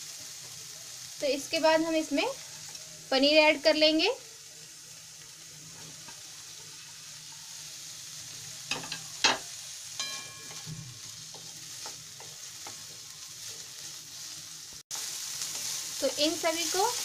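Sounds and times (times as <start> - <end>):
vegetables sizzling in oil: 0.0 - 17.0
ringing metal clang: 10.0 - 11.0.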